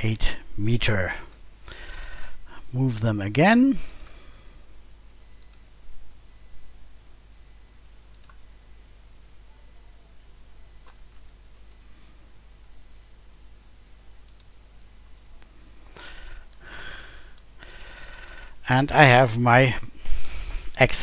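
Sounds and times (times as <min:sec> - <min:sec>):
steady low hum: 0:00.0 - 0:21.0
computer mouse clicks: 0:08.1 - 0:08.4, 0:14.2 - 0:14.5
faint high electronic beep: 0:09.5 - 0:10.0.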